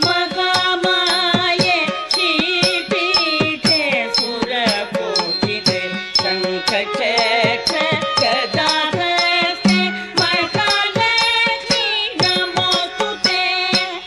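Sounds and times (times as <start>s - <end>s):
regular percussion beat: 0.0s - 14.0s
ornamented melody: 9.5s - 10.8s.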